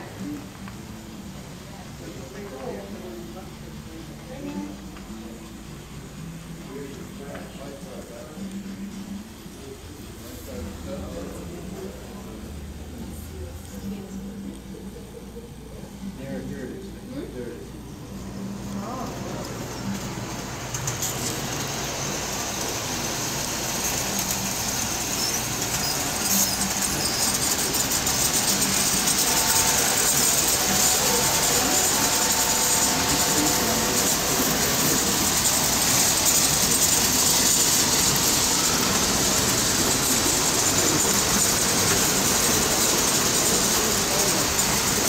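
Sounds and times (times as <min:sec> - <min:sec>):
toy trains running on metal track: 0:18.6 - 0:45.0.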